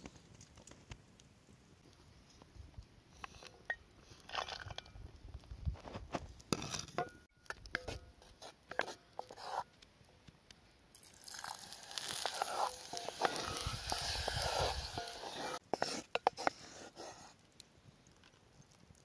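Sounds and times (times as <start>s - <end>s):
light crackles and clicks: 0.0s - 3.6s, 17.4s - 19.0s
wooden spoon scraping a pot: 7.8s - 9.6s, 12.0s - 17.3s
chocolate sizzling in a pot: 10.9s - 16.5s.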